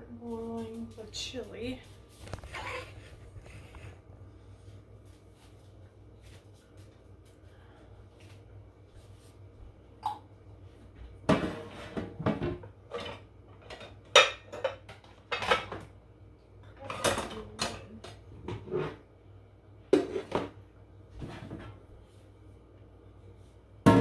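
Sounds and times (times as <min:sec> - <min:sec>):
pots and pans clattering: 0:11.3 - 0:15.9, 0:16.8 - 0:19.0.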